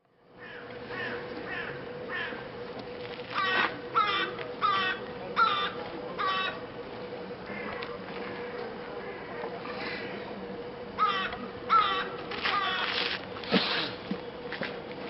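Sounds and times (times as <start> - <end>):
crow cawing: 0.4 - 2.5, 3.3 - 6.6, 7.5 - 9.4, 11.0 - 13.0.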